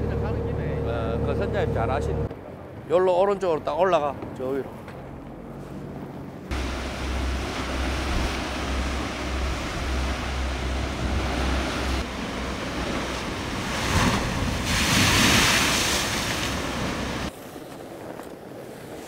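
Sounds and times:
wind buffeting microphone: 3.7s - 19.0s
waves crashing against rocks: 6.5s - 17.3s.

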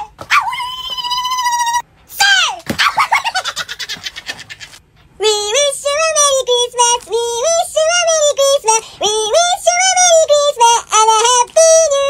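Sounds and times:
high synthetic singing voice: 5.2s - 12.0s.

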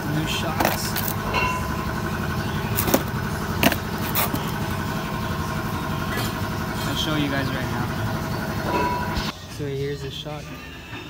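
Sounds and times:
low mechanical hum: 0.0s - 11.0s
cardboard boxes knocking: 2.8s - 4.5s.

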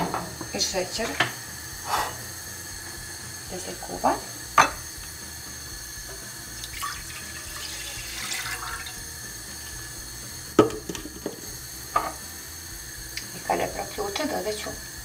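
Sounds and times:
water poured into a pot: 5.7s - 13.5s
wooden spoon knocking on pot: 10.6s - 11.4s.

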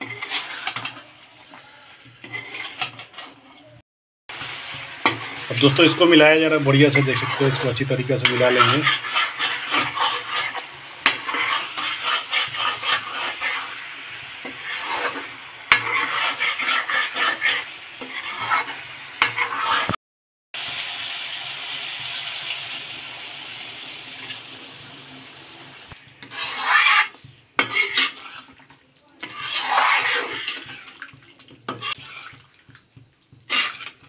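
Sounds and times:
oil sizzling: 0.0s - 3.6s, 4.3s - 20.0s, 20.6s - 34.0s
spatula scraping metal pan: 0.0s - 3.8s, 4.4s - 20.0s, 26.0s - 34.0s
water hissing in hot pan: 4.3s - 20.0s, 20.6s - 28.5s, 29.2s - 31.1s, 33.4s - 34.0s.

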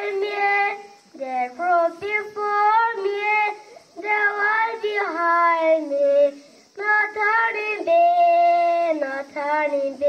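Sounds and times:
boy singing solo: 0.0s - 10.0s.

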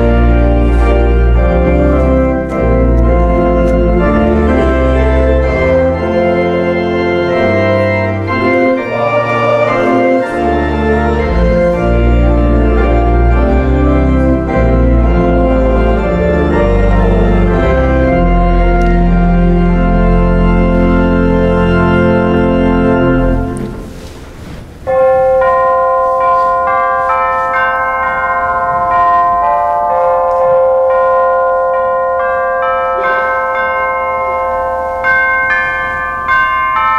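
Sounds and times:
church organ playing: 0.0s - 36.9s
bell-like chime melody: 24.9s - 36.9s.

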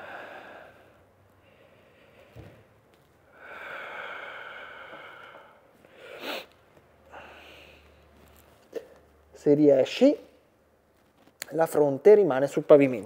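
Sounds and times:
man breathing heavily: 0.0s - 2.4s, 3.3s - 8.2s.

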